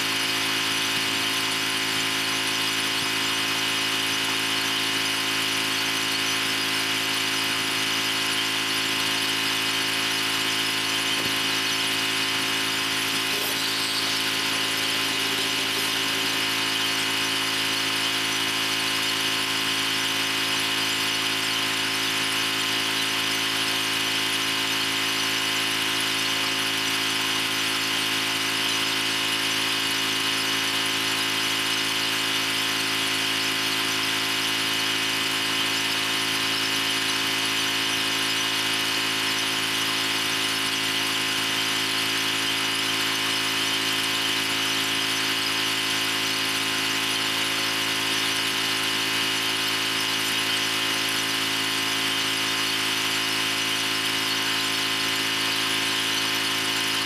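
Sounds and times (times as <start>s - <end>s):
pressure washer machine drone: 0.0s - 57.0s
high-pressure water spray hiss: 10.8s - 19.1s.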